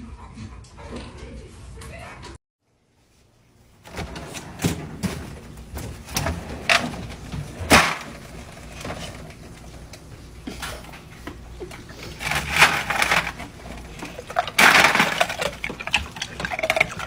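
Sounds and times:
ice cubes clattering in plastic drawer: 3.9 - 9.4, 12.0 - 17.0.

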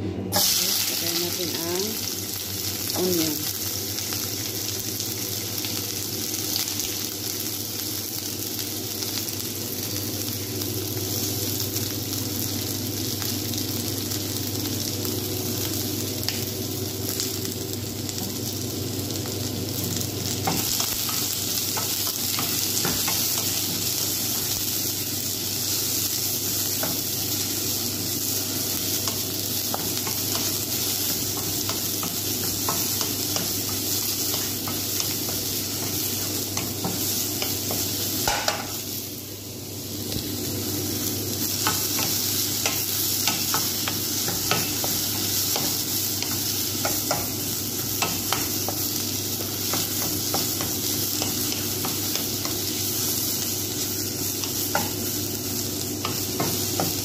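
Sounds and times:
onions sizzling in oil: 0.3 - 57.0.

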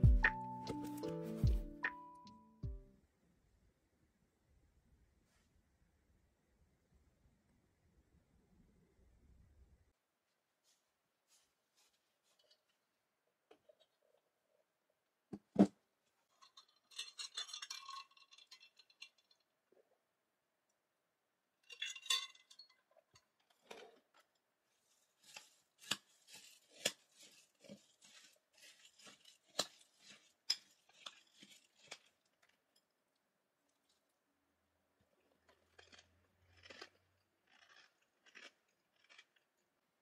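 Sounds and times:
rattling and clinking: 16.3 - 19.4, 21.7 - 23.9
metal spoon scraping ceramic bowl: 25.3 - 32.1.

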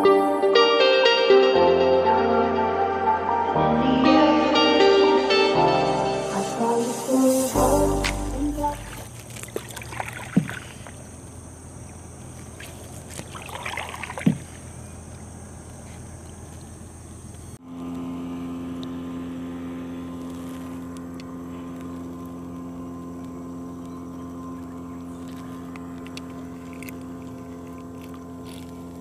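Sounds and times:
droning hum: 0.0 - 29.0
water swishing: 8.6 - 15.4.

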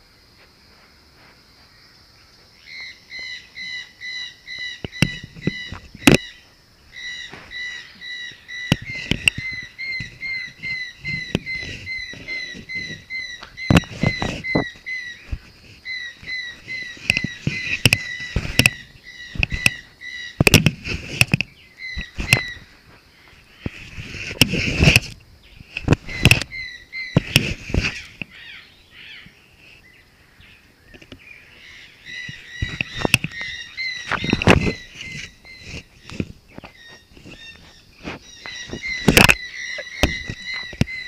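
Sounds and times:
bird chirping: 1.6 - 41.0
knocking and rubbing on camera: 8.7 - 19.8, 20.4 - 22.6, 23.6 - 25.2, 25.8 - 28.1, 32.3 - 41.0.

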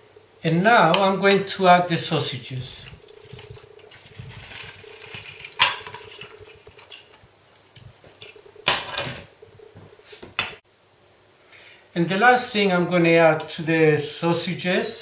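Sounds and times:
spatula scraping: 2.8 - 7.2
paper rustle: 2.8 - 7.3.

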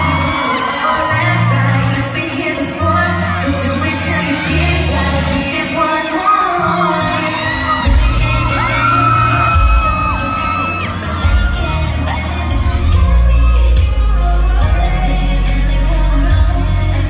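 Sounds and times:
live pop song over loudspeakers: 0.0 - 17.0
person singing into microphone: 0.0 - 17.0
heavy bass beat: 7.9 - 17.0.

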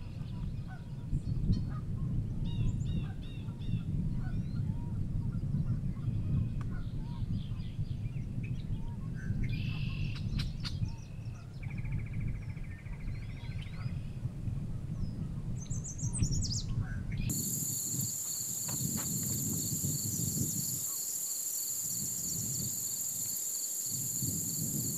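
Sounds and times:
steady high hiss: 17.3 - 24.9.

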